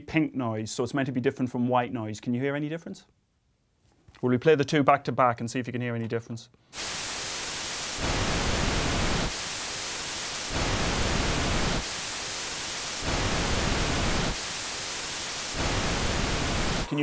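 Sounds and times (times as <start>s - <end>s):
pink noise deeper hiss: 6.8s - 17.0s
white noise hiss: 6.8s - 17.0s.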